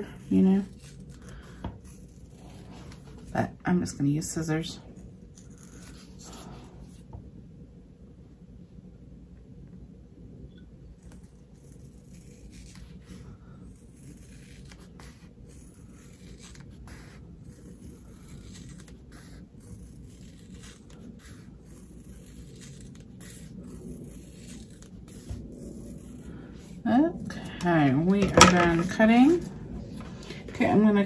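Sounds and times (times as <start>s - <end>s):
scissors snipping vinyl: 0.0s - 3.3s, 11.0s - 26.8s
low room hum: 0.0s - 31.0s.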